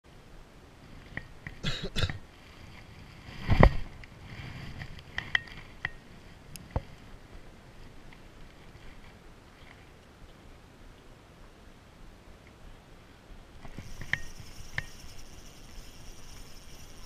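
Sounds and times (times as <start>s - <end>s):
fishing reel clicks and taps: 13.7s - 17.0s.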